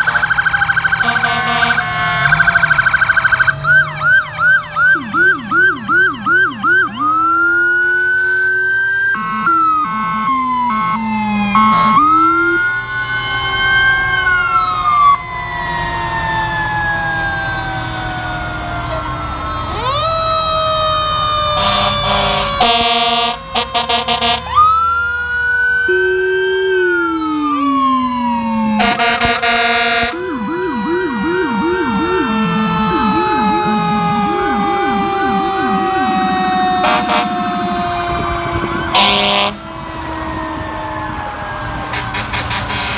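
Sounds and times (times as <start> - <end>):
fire truck horn blasts: 0.0 - 0.4, 1.0 - 2.9, 11.6 - 12.1, 21.4 - 24.6, 28.8 - 33.2, 33.9 - 40.1, 41.8 - 42.9
fast siren yelp: 0.0 - 42.9
fire truck sirens wailing: 0.0 - 42.9.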